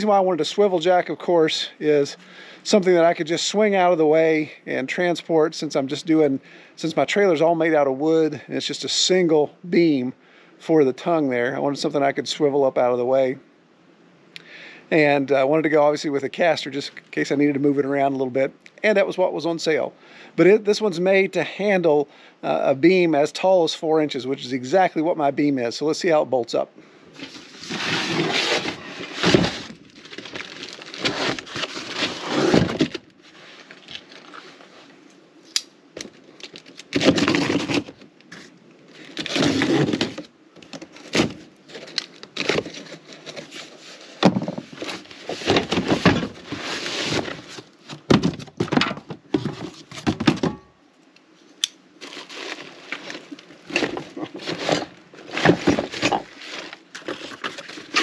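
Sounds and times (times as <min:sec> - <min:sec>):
cardboard ripping: 0:27.2 - 0:33.0, 0:36.9 - 0:38.0, 0:39.1 - 0:40.3, 0:40.9 - 0:43.8
plastic wrap crinkling: 0:27.2 - 0:34.2.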